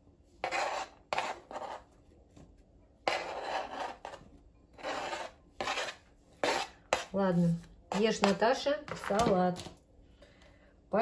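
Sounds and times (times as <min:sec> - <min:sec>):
knife scraping cutting board: 0:00.4 - 0:01.9, 0:03.0 - 0:04.2, 0:04.8 - 0:09.3.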